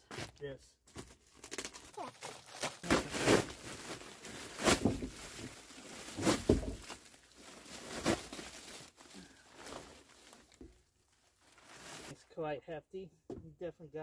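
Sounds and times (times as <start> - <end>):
plastic mailer tearing and rustling: 0.9 - 10.6.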